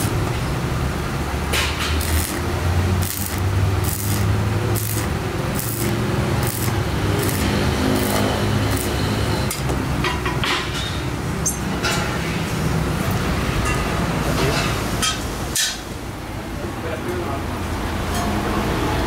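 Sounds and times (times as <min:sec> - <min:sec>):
welding arc crackling and hissing: 0:00.0 - 0:00.5, 0:01.2 - 0:09.7.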